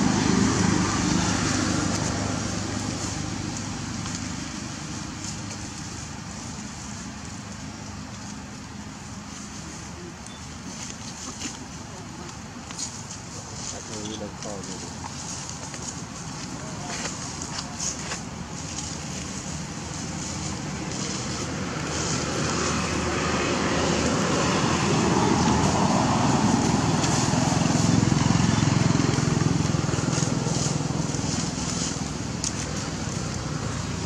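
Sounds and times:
vehicle passing by: 0:00.0 - 0:34.0.

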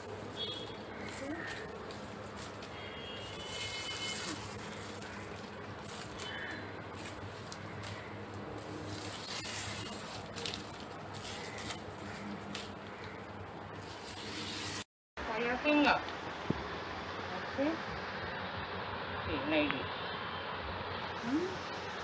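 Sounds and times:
dry palm leaves rustling: 0:00.0 - 0:14.8
knife stripping leaf ribs: 0:03.3 - 0:14.8.

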